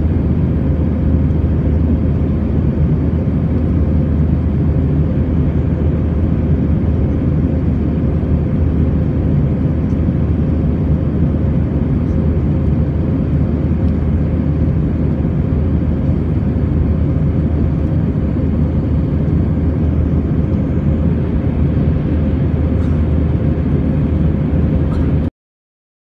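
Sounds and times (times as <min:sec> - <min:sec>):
jet engine and airflow rumble: 0:00.0 - 0:25.3.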